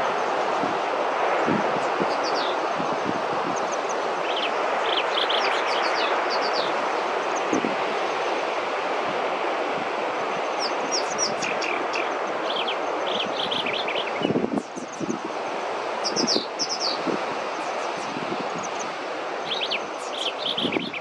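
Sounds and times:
loud steady rushing noise: 0.0 - 21.0
small birds chirping: 3.6 - 7.6, 10.5 - 15.3, 16.0 - 21.0.

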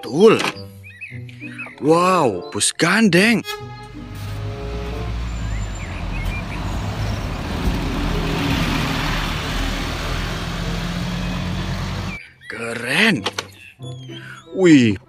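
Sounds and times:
bus engine humming: 3.4 - 12.2
street noise: 3.4 - 12.2.

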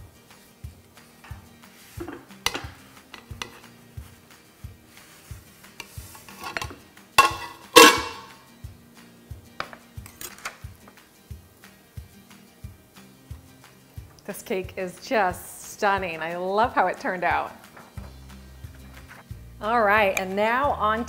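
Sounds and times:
metal clinking and scraping: 2.0 - 3.7, 5.8 - 8.4.

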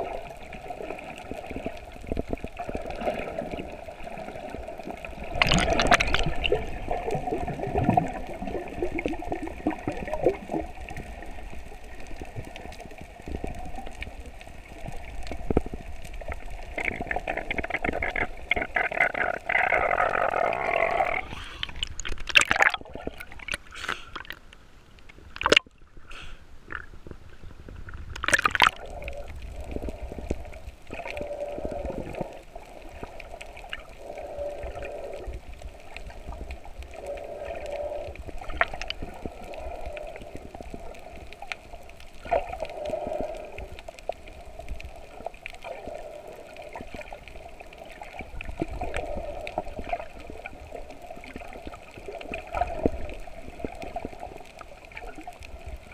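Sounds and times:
water splashes: 0.0 - 26.0, 27.8 - 55.9
muffled underwater sloshing and gurgling: 0.0 - 55.9.

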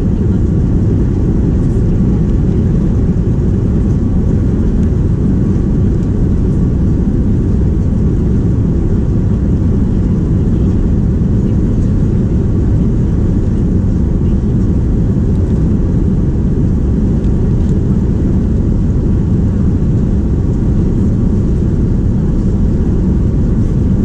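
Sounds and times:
faint steady whine: 0.0 - 24.0
jet engines deep rumble: 0.0 - 24.0.

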